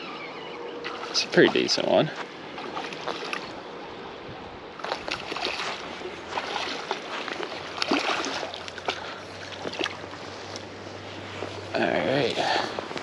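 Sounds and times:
fish splashing in water: 4.8 - 10.0.

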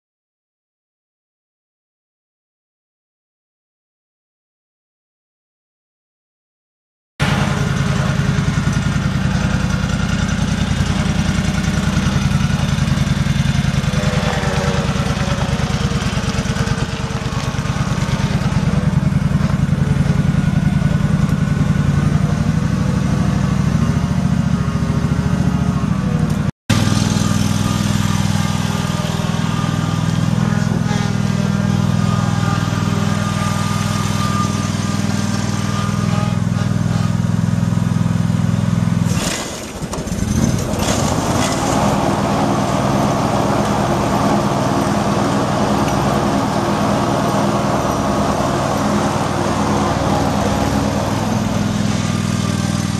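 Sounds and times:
mower engine running: 7.2 - 52.9.

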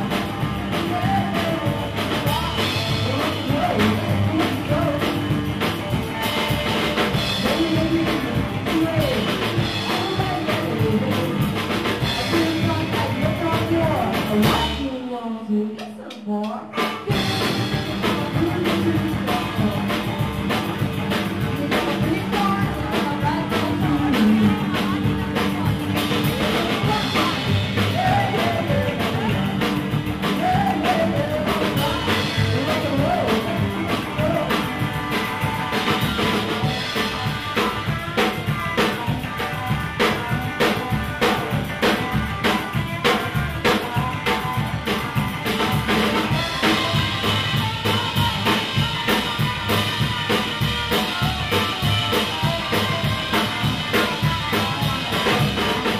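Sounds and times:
drum kit beat: 0.0 - 15.0, 15.8 - 55.9
electric guitar: 0.0 - 55.9
woman singing: 0.1 - 37.2.

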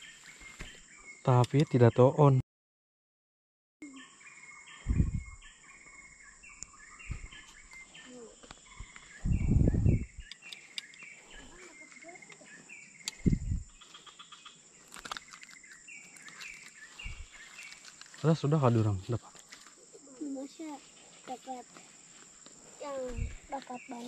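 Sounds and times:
insects droning: 3.8 - 24.0
low thumps: 4.8 - 5.4, 8.8 - 10.3, 13.2 - 13.7
short repeated chirping calls: 6.4 - 14.6, 15.2 - 17.8.

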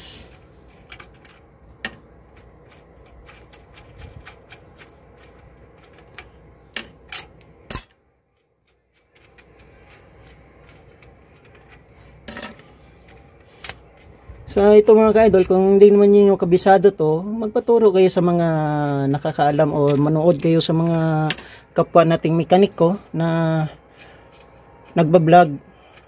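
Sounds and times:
small metal parts clinking: 0.3 - 14.6
sharp metallic clink: 7.2 - 8.1.

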